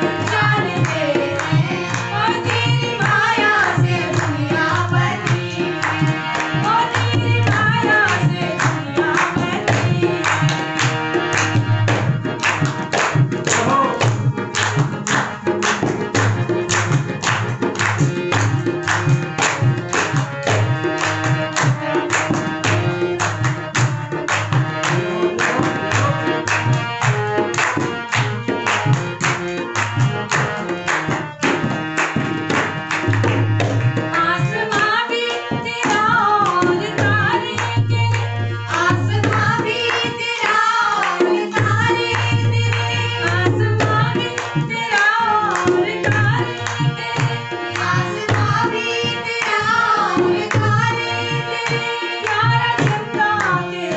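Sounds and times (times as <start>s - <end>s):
voices singing: 0.0s - 11.8s, 24.6s - 30.8s, 33.5s - 53.9s
hand drum rhythm: 0.0s - 53.9s
hand-clapping: 0.0s - 53.9s
harmonium: 0.0s - 53.9s.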